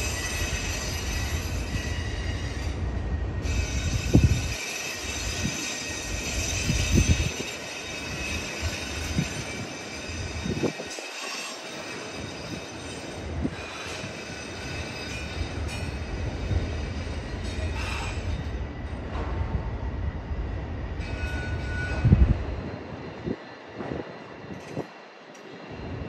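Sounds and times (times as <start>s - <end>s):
high-pitched wheel squeal: 0.0s - 2.8s, 3.4s - 18.3s, 21.0s - 22.3s
train wheels rumbling on rail: 0.0s - 26.0s.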